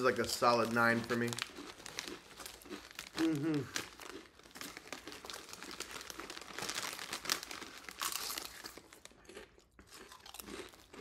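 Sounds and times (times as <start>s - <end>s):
chip bag crinkling: 0.0s - 11.0s.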